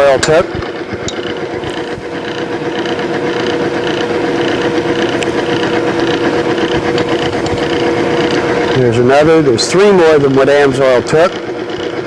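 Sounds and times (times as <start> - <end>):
electric motor whine: 0.0 - 12.0
metal arbor rubbing with pulsing rasp: 0.0 - 12.0.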